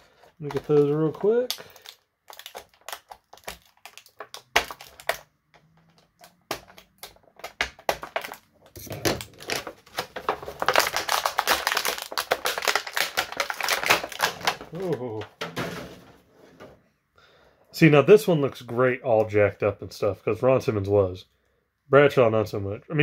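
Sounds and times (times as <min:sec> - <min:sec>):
packaging crackling: 0:00.0 - 0:15.2.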